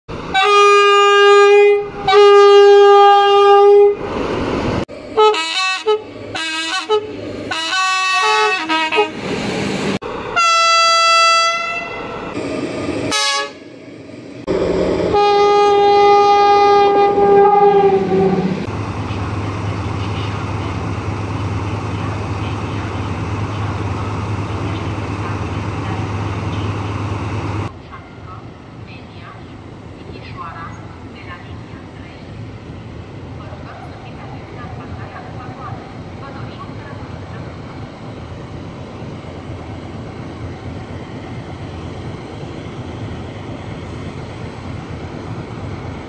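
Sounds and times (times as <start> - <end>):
low train rumble: 0.1 - 46.0
locomotive horn blasts: 0.3 - 4.0, 5.2 - 9.2, 10.4 - 12.0, 13.1 - 13.6, 15.1 - 18.5.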